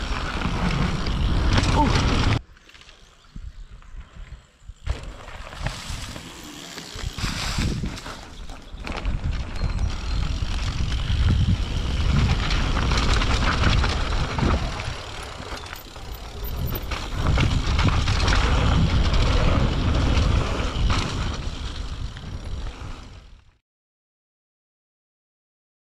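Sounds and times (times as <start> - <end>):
bike tyres on dirt and leaves: 0.0 - 23.5
bike knocking and rattling: 4.1 - 23.0
wind buffeting microphone: 7.0 - 22.6.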